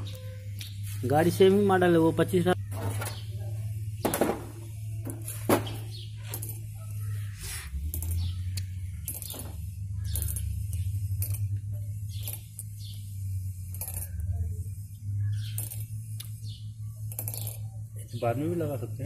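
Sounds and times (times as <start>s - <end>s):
steady low hum: 0.0s - 19.0s
metal parts clinking: 5.2s - 14.5s, 15.3s - 16.3s, 17.0s - 17.7s.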